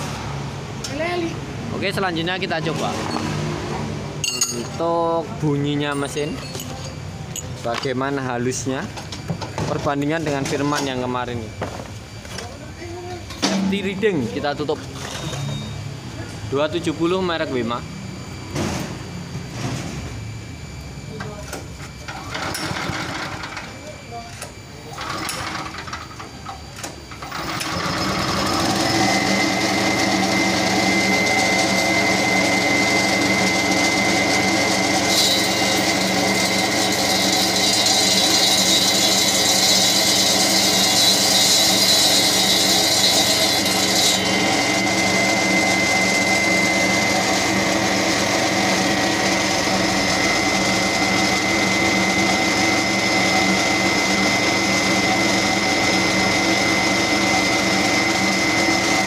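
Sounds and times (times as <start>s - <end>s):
cutting blade whining: 21.2s - 59.0s
petrol engine of concrete cutter: 22.1s - 23.7s, 24.8s - 26.3s, 27.1s - 59.0s.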